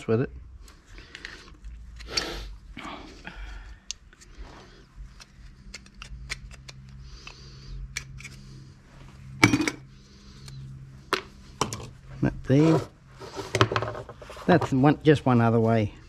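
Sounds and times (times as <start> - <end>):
screwdriver clicking and scraping metal: 5.2 - 7.0, 7.9 - 8.4.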